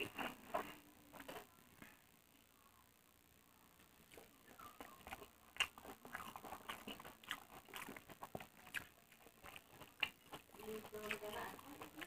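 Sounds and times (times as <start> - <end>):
person chewing and lip smacking: 3.8 - 12.0.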